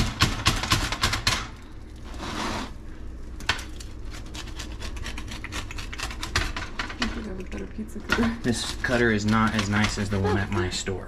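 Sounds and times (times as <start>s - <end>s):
pizza cutter scraping board: 2.1s - 2.8s
pizza cutter crunching through crust: 3.8s - 6.6s, 8.5s - 10.6s.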